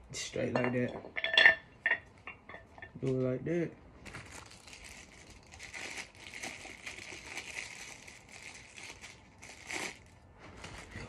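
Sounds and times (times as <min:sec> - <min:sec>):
plastic packaging crinkling: 0:04.0 - 0:11.0.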